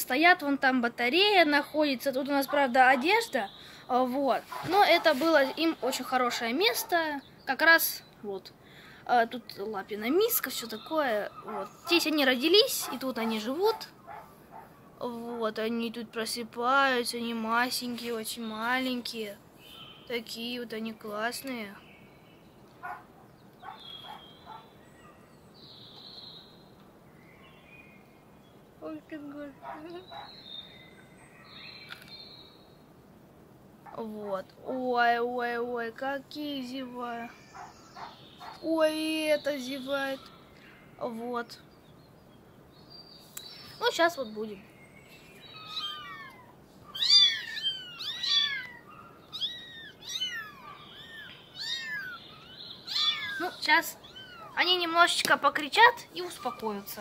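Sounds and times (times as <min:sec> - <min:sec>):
kittens mewing: 0:45.5 - 0:54.9.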